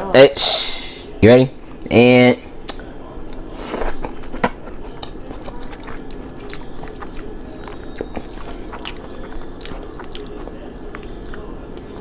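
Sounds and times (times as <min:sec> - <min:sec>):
person biting and chewing: 0:02.6 - 0:12.0.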